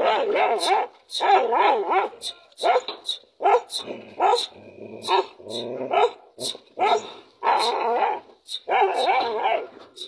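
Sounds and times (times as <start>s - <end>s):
dogs barking: 0.0s - 6.2s, 6.8s - 9.7s
dogs growling and snarling: 3.8s - 9.7s.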